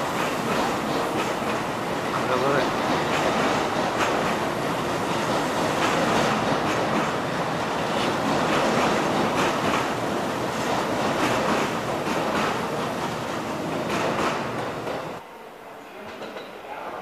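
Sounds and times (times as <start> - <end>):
train wheels clacking on rail joints: 0.0 - 15.2, 16.0 - 16.6
electric train rumbling past: 0.0 - 17.0.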